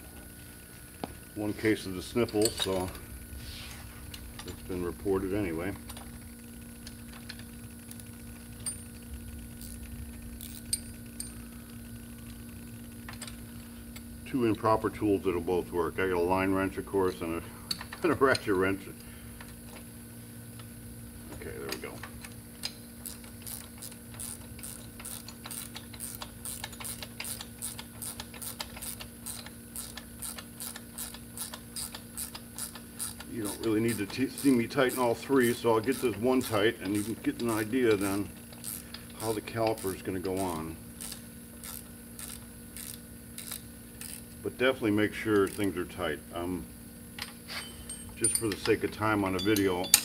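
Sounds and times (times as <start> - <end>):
steady low hum: 0.0 - 50.0
metallic clinks of wrench and nuts: 8.5 - 9.0, 10.5 - 11.4, 21.7 - 44.2, 47.2 - 50.0.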